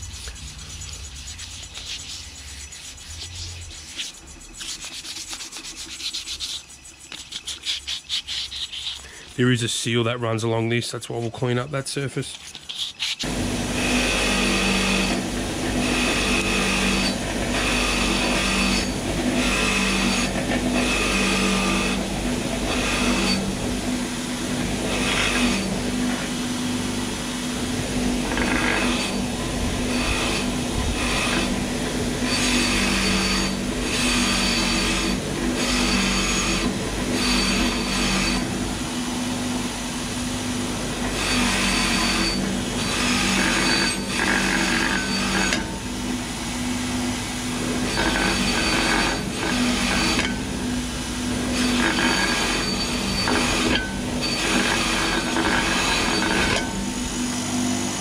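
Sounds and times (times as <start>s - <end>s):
abrasive paper rubbing on steel: 0.0s - 10.0s, 11.1s - 13.3s
steady hum: 0.0s - 58.0s.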